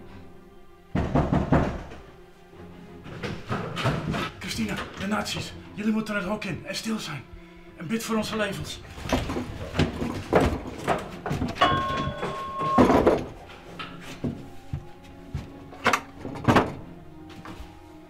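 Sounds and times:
knocks and bumps on wood: 0:00.9 - 0:02.1, 0:03.0 - 0:04.4, 0:09.0 - 0:13.5, 0:14.1 - 0:17.0
wooden cabinet squeak: 0:08.9 - 0:14.6.

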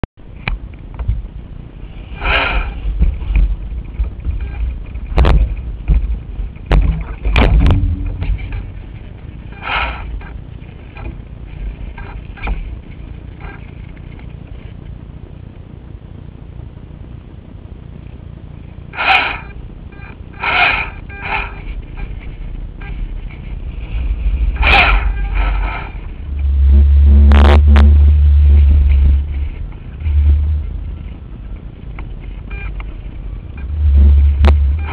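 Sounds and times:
wind buffeting microphone: 0:00.2 - 0:34.9
short loud noise bursts: 0:02.0 - 0:03.0, 0:18.9 - 0:31.2
sharp knocks from boat: 0:03.0 - 0:08.9.

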